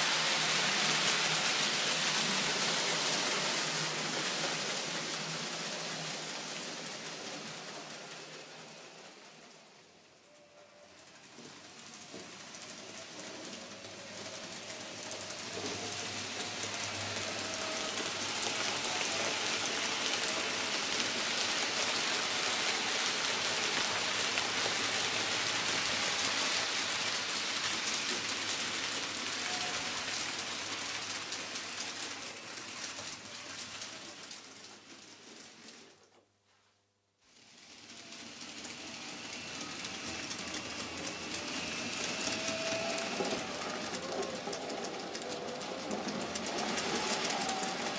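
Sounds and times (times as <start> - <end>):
model train wheels rattling: 0.0 - 36.3, 37.3 - 47.9.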